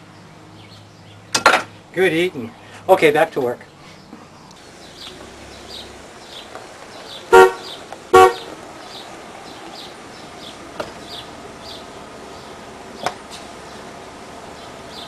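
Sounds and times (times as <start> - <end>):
car horn toots: 7.3 - 8.6.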